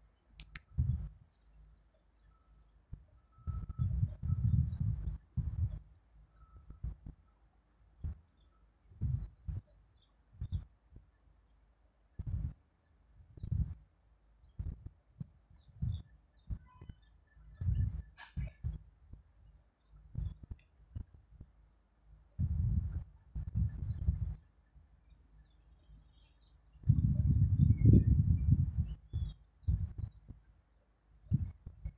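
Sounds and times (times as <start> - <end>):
small birds chirping: 0.0 - 31.9
wind buffeting microphone: 0.7 - 1.3, 3.0 - 5.9, 8.9 - 9.7, 10.4 - 11.1, 12.2 - 12.6, 13.2 - 13.9, 14.6 - 19.2, 22.4 - 24.5, 26.8 - 30.4, 31.2 - 31.9.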